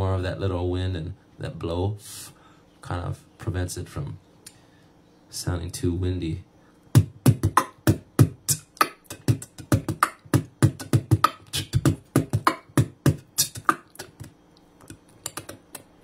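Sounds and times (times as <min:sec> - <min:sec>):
beatboxing into microphone: 0:07.0 - 0:16.0.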